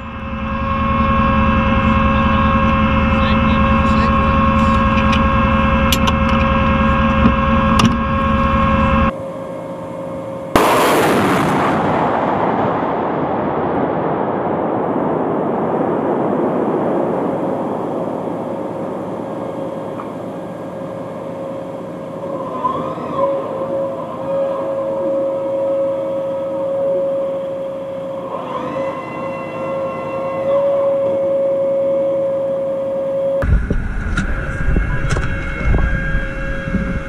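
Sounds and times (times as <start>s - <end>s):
vehicle hum: 0.0s - 10.7s, 33.4s - 37.0s
rocket launch blast: 10.5s - 19.6s.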